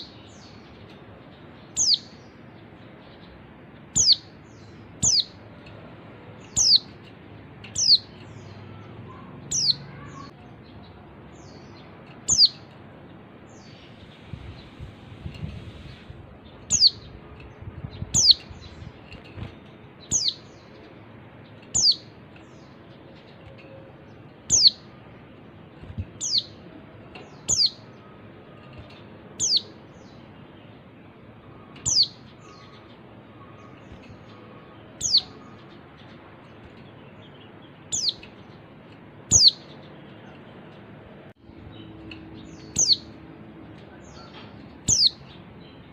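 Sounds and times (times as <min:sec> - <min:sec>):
bird chirping: 0:00.0 - 0:45.9.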